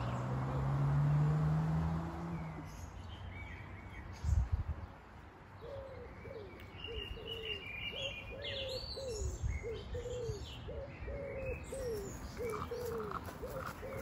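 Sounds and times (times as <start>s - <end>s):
small birds chirping: 0.0s - 14.0s
pigeon cooing: 5.6s - 14.0s.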